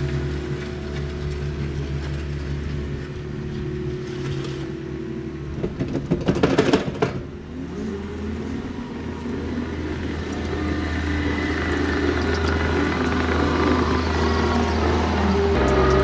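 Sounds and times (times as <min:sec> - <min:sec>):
diesel engine running: 0:07.3 - 0:16.0.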